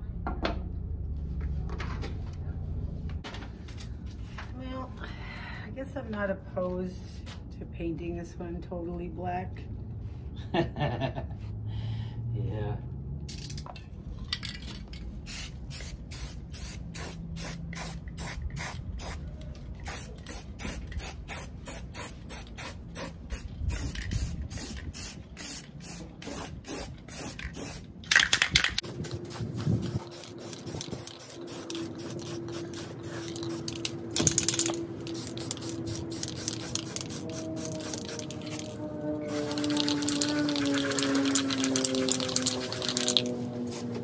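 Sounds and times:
spray-paint can spraying: 0:13.3 - 0:13.6, 0:15.2 - 0:19.2, 0:19.8 - 0:43.9.

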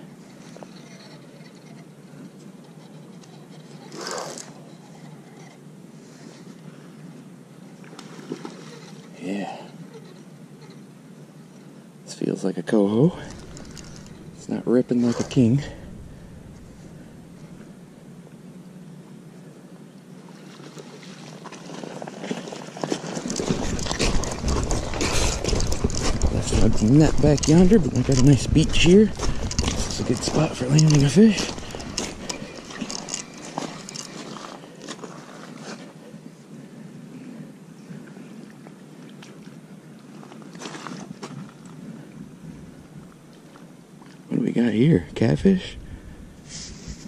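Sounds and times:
footsteps crunching on gravel: 0:13.1 - 0:17.0, 0:21.7 - 0:35.5
low rumble on microphone: 0:13.1 - 0:18.0, 0:23.4 - 0:32.9
fishing reel whirring: 0:13.2 - 0:14.4, 0:28.8 - 0:34.5.

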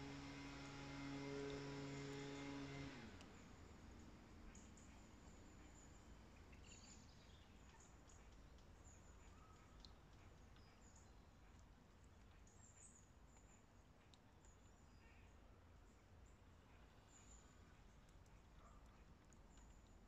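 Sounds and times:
faint high bird chirps: 0:04.5 - 0:11.3.

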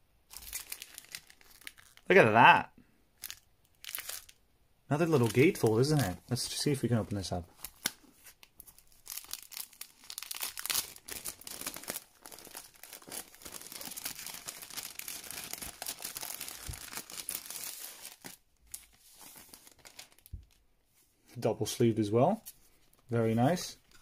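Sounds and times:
paper and card rustling: 0:05.0 - 0:20.6.

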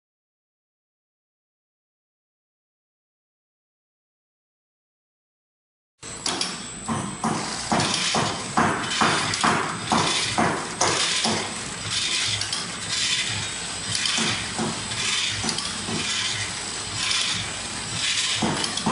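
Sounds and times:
high machine whine and hiss: 0:06.0 - 0:18.9
packing machine clacking: 0:07.2 - 0:18.9.

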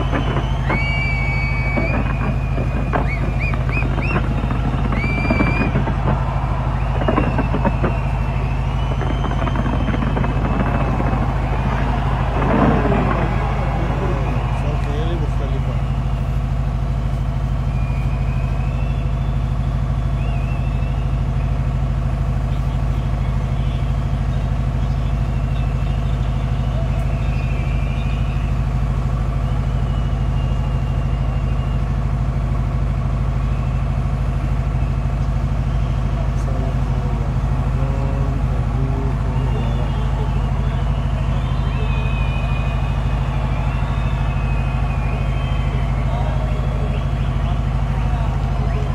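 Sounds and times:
fireworks bursts and cracks: 0:00.0 - 0:16.3, 0:32.0 - 0:48.9
engine running steadily: 0:00.0 - 0:48.9
firework whistle: 0:00.0 - 0:48.9.

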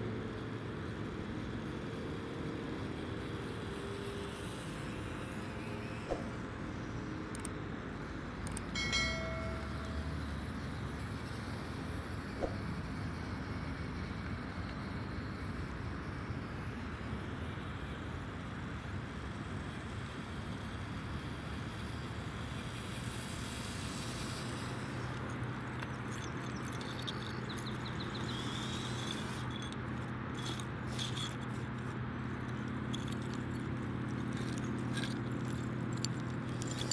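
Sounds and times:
small electric motor whirring: 0:23.0 - 0:36.9
tyres scraping on tile shards: 0:25.8 - 0:31.9, 0:32.6 - 0:36.9.

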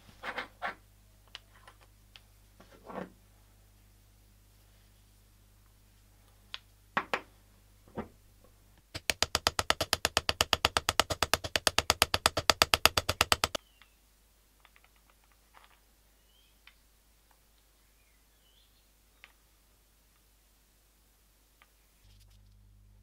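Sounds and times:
small hammer tapping metal: 0:09.0 - 0:13.6.

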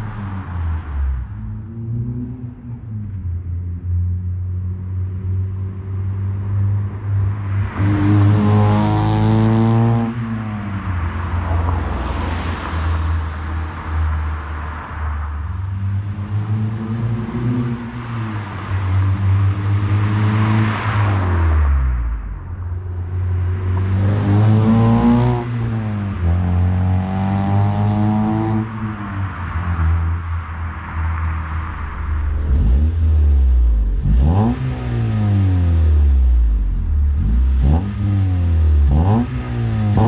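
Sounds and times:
car accelerating past: 0:23.7 - 0:36.2.

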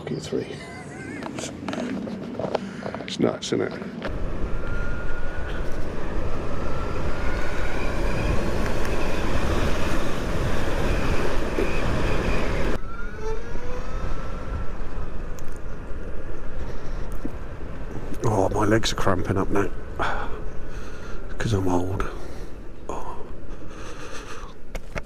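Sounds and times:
tyre and road noise: 0:00.9 - 0:25.0
wind rushing over microphone: 0:04.0 - 0:19.1
electric motor whine: 0:04.1 - 0:15.2.

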